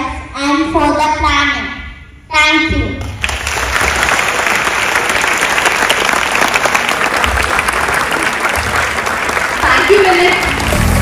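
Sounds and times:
large audience applauding: 3.2 - 11.0.

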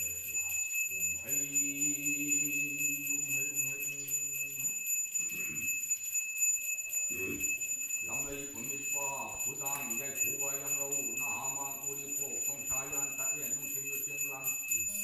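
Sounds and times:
person chanting: 0.0 - 4.8
bell ringing: 0.0 - 15.0.

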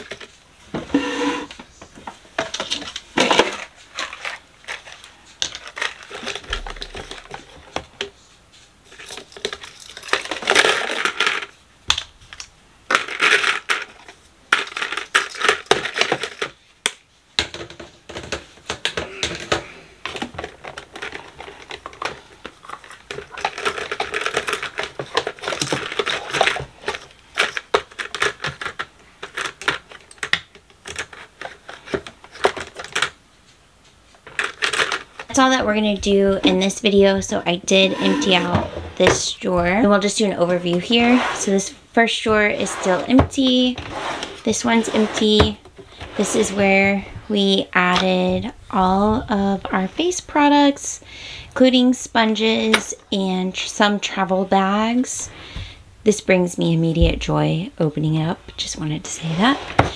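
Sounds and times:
plastic hair accessories clattering: 2.4 - 7.8, 8.9 - 11.5, 12.4 - 16.6, 17.4 - 33.2, 34.2 - 40.0.

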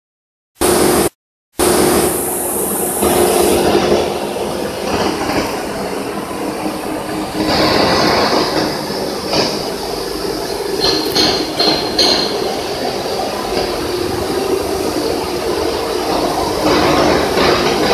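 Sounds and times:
bright hiss: 0.6 - 5.3
constant machine hum: 0.6 - 17.9
machinery rumbling and clattering: 0.6 - 17.9.

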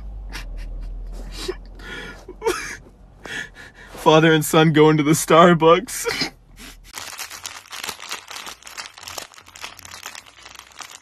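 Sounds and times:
plastic wrapper crinkling: 6.9 - 11.0.

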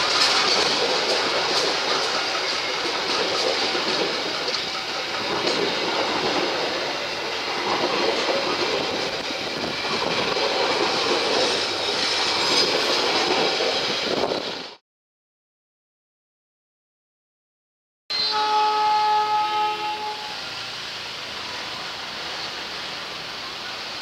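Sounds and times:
wheels clicking over rail joints: 0.0 - 14.0
wheel and rail noise: 0.0 - 14.8, 19.4 - 24.0.

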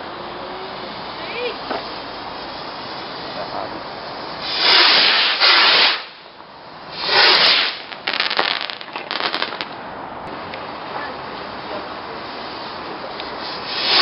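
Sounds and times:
fireworks launching whoosh: 1.6 - 6.3, 6.9 - 9.9, 12.2 - 14.0
crackling pops: 7.0 - 9.8.

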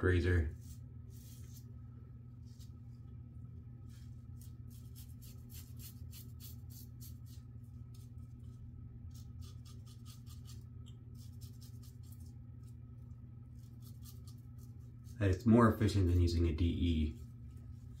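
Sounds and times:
steady low hum: 0.0 - 18.0
razor scraping beard stubble: 4.4 - 8.1, 9.1 - 12.4, 13.5 - 15.4.

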